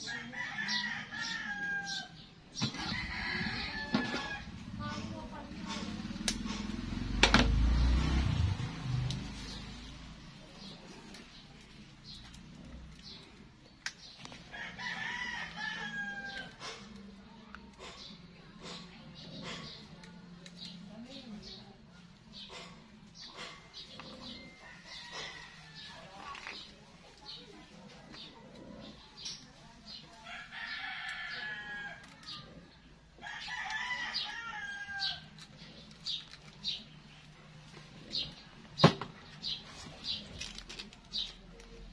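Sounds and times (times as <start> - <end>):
roosters crowing: 0.0 - 5.1, 14.3 - 17.1, 23.8 - 26.4, 29.9 - 35.8
rooster crowing: 14.5 - 16.6, 33.2 - 35.3.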